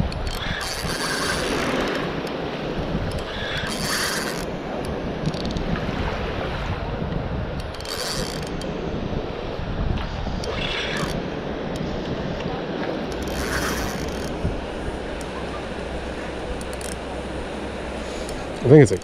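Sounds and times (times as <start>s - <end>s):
fishing reel gears whirring: 0.0s - 2.4s, 3.0s - 4.6s, 5.2s - 5.7s, 7.6s - 8.8s, 10.3s - 11.9s, 13.1s - 18.7s
wind rumble on microphone: 0.0s - 19.0s.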